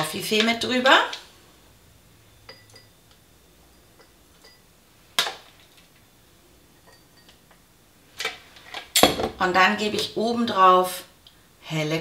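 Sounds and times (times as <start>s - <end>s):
spoon clinking against glass bowl: 2.4s - 3.0s, 3.7s - 4.6s, 6.8s - 7.4s.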